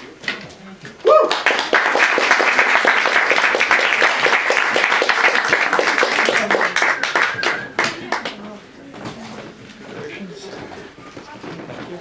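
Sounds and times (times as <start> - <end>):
audience applauding: 1.1 - 8.4.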